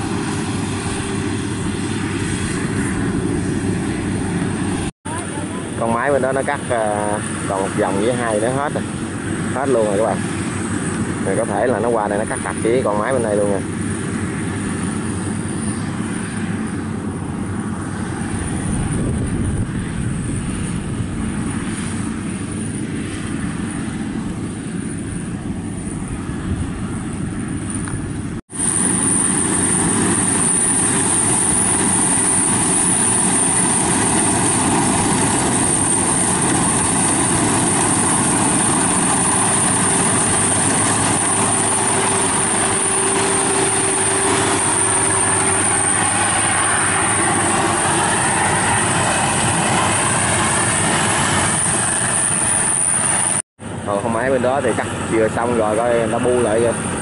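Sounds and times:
combine harvester engine drone: 0.0 - 57.0
steady high whine: 0.0 - 57.0.

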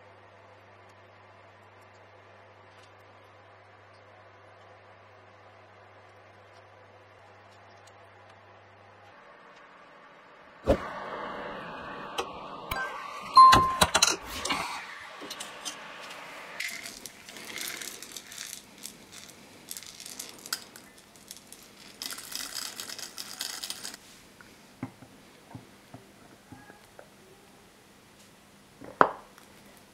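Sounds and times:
peppercorns rattling into mill: 16.6 - 24.0.

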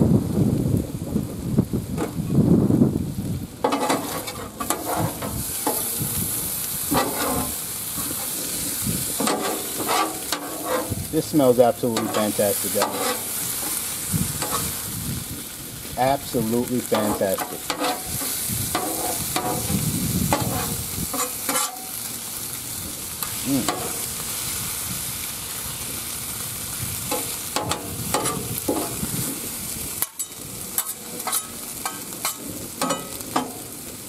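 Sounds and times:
food sizzling on griddle: 0.0 - 34.0
metal spatula scraping griddle: 3.6 - 15.4, 16.1 - 22.3, 23.2 - 24.5, 27.0 - 33.8.

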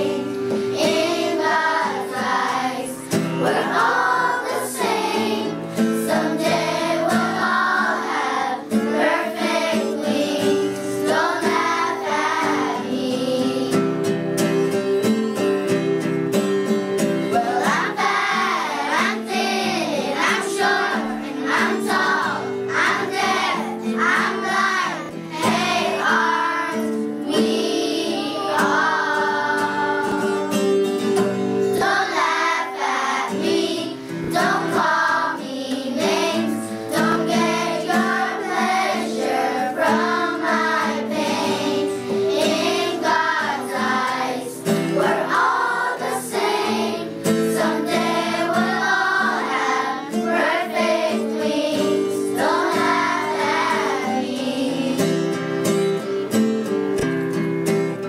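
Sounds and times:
children singing: 0.0 - 14.1, 17.3 - 55.4
acoustic guitar: 0.0 - 58.0
woman singing: 45.0 - 46.3.

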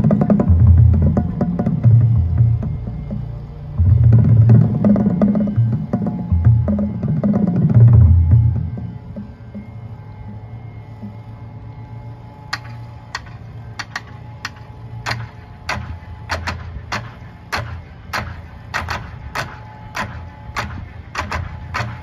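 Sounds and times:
low steady hum: 0.0 - 22.0
sharp percussive clicks: 12.5 - 22.0.

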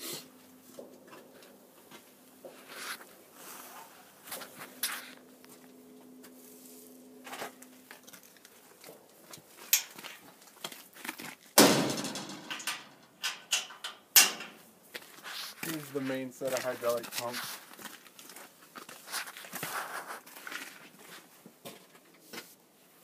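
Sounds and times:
loud metal bang ringing: 11.6 - 13.0
metal panels clanking: 11.6 - 14.7.

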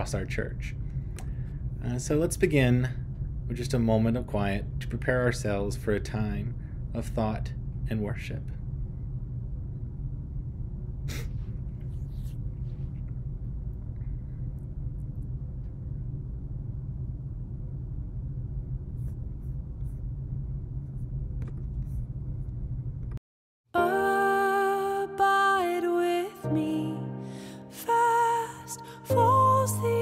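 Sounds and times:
room rumble and hum: 0.0 - 23.2.

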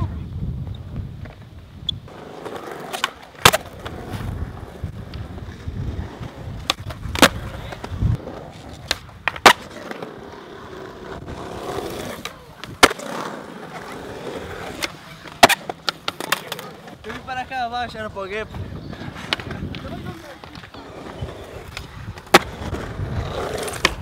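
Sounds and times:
skateboard wheels rolling on concrete: 0.0 - 24.0
skateboard clacks: 2.4 - 4.3, 6.1 - 17.4, 18.9 - 24.0.

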